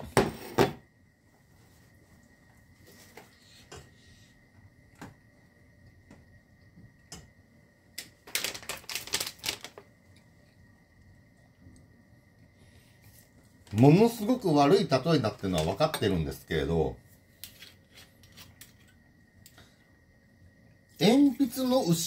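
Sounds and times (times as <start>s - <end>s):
faint high whine: 0.0s - 22.0s
plastic food pouch crinkling: 8.0s - 9.9s.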